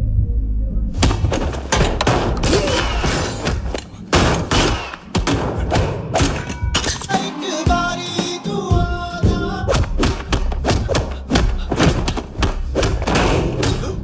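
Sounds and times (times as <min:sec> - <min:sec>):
film score music: 0:00.0 - 0:14.0
hard hits: 0:01.0 - 0:07.0.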